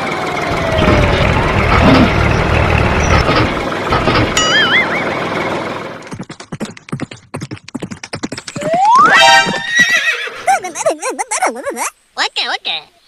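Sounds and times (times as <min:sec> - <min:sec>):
wavering warbling calls: 0:00.4 - 0:05.3
galloping hoofbeats: 0:00.8 - 0:05.0, 0:06.0 - 0:10.4
horse whinny: 0:09.2 - 0:10.5.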